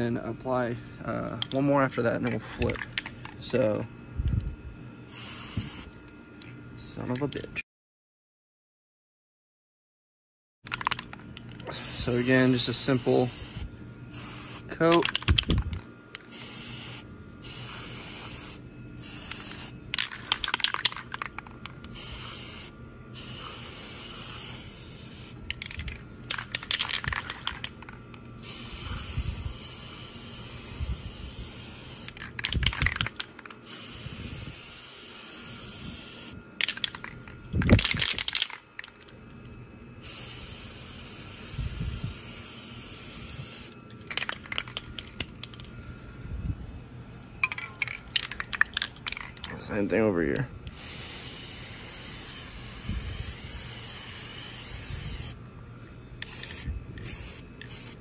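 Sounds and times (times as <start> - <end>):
spray can hissing bursts: 5.1 - 5.9, 11.6 - 15.6, 16.2 - 39.0, 40.0 - 45.6, 50.7 - 55.4, 56.2 - 58.0.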